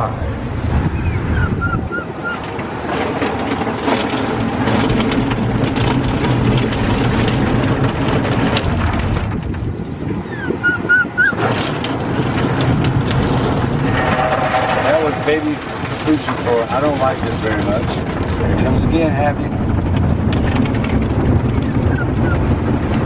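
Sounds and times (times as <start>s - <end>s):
car wash water spray and machinery: 0.0s - 14.1s.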